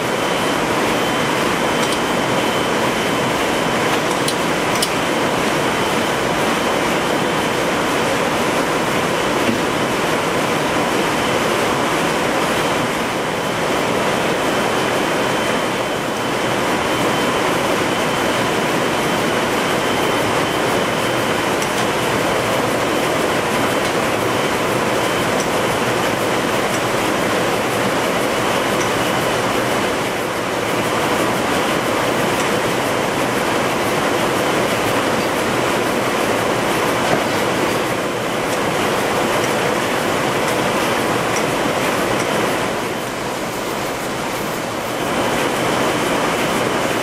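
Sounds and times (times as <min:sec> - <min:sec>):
looms running: 0:16.4 - 0:47.0.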